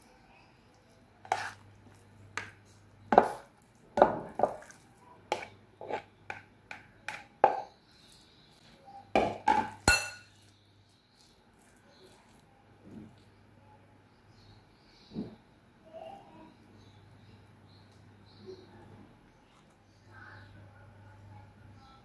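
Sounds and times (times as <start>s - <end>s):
spoon scraping bowl: 1.2s - 3.6s, 4.3s - 6.4s
spoon knocking on plastic bowl: 5.3s - 7.7s
spoon clinking on glass: 9.6s - 10.5s.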